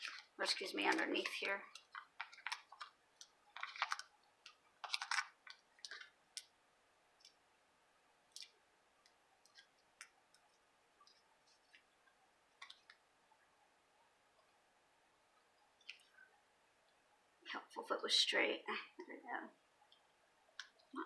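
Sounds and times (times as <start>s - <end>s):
paper rustles: 3.6s - 4.1s.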